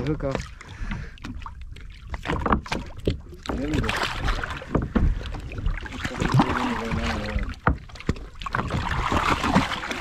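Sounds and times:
water noise: 0:00.0 - 0:10.0
wind: 0:00.0 - 0:10.0.

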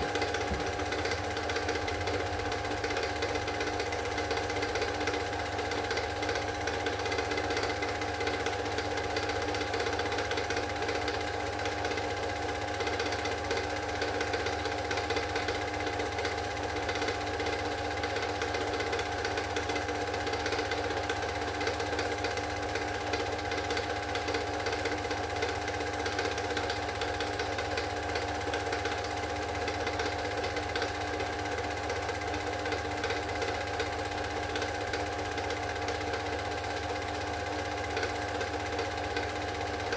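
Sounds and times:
film drive mechanical chatter: 0:00.0 - 0:17.6
film projector motor whir: 0:00.0 - 0:39.9.

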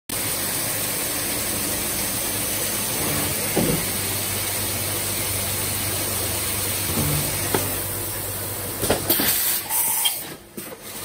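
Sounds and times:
coolant spraying hiss: 0:00.1 - 0:11.0
low machine hum: 0:00.2 - 0:09.8.

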